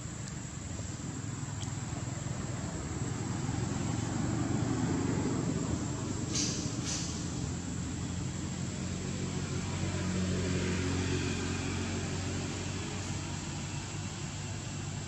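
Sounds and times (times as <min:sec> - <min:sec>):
faint even hiss: 0:05.4 - 0:09.0.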